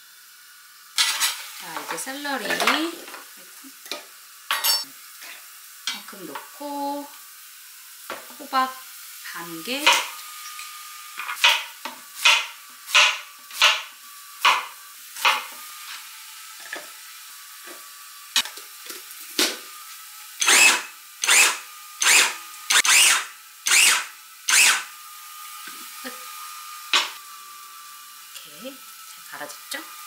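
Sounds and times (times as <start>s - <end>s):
vegetable chopper chopping: 9.8s - 10.1s, 11.2s - 15.6s, 20.4s - 24.8s.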